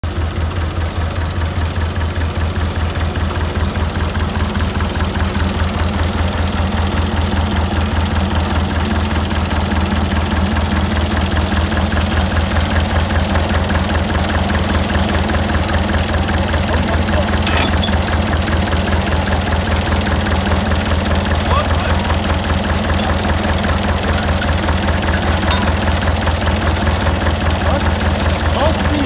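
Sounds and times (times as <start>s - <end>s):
diesel locomotive engine thudding: 9.9s - 29.0s.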